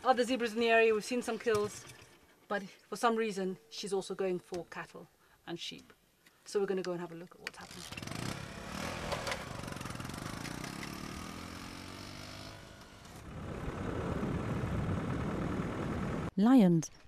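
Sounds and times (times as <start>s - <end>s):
motorcycle engine pulling away: 0.0s - 2.4s, 7.6s - 16.3s
off-road vehicle engine rumble: 0.0s - 2.5s, 7.6s - 16.3s.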